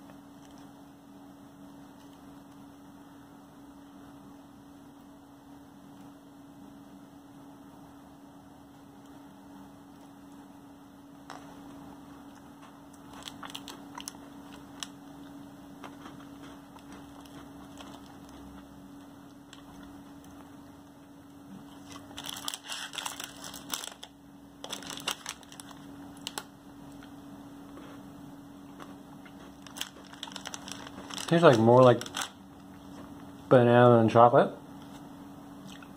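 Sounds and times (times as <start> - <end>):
crisp crunching: 11.3 - 20.5, 21.6 - 27.1, 28.7 - 33.2.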